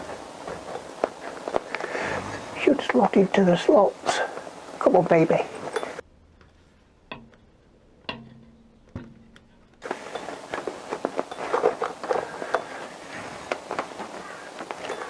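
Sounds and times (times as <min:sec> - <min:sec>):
metal scraping and rattling: 0:05.6 - 0:15.0
metal knocks with ring: 0:08.1 - 0:09.6.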